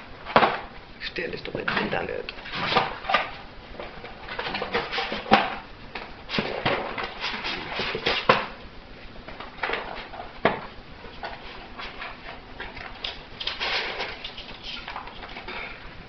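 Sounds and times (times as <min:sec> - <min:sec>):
dog tearing cardboard: 0:06.3 - 0:08.6, 0:11.2 - 0:15.0.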